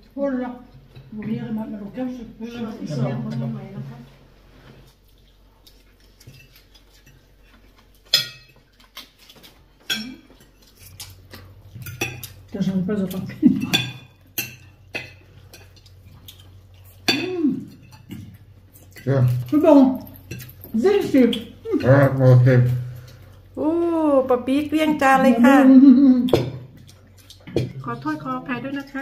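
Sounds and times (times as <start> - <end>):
cutlery clinking on plates: 6.0 - 12.4, 13.1 - 20.7.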